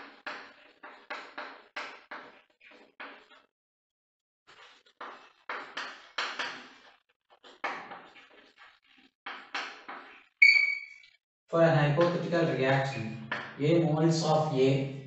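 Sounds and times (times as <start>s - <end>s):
chalk writing on a chalkboard: 0.0s - 3.4s, 4.5s - 10.7s.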